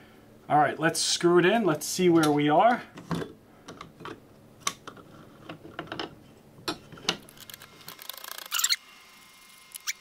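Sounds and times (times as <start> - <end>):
regulator screwing clicks and scrapes: 7.3 - 8.8.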